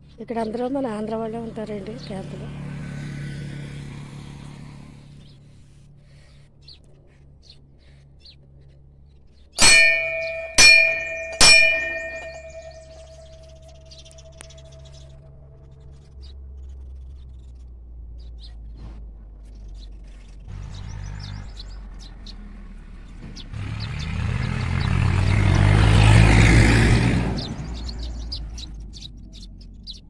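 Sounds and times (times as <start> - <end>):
faint bird chirps: 5.2 - 17.6, 27.4 - 30.0
metal temple bell ringing: 9.6 - 15.2.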